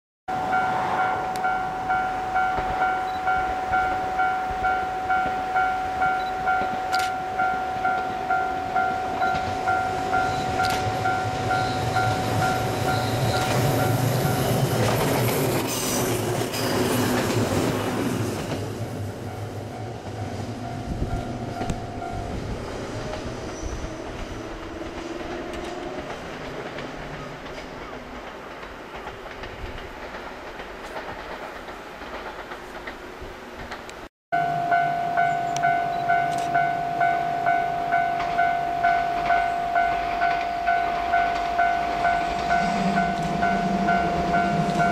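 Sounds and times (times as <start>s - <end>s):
level crossing bell clanging: 0.3s - 14.7s, 34.4s - 44.9s
electric train rumbling past: 0.3s - 44.9s
train wheels clacking on rail joints: 6.2s - 34.1s, 35.2s - 44.9s.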